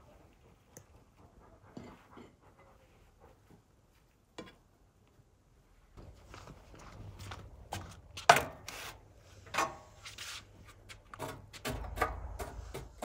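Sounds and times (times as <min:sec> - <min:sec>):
rubbing and scraping: 0:09.8 - 0:13.0.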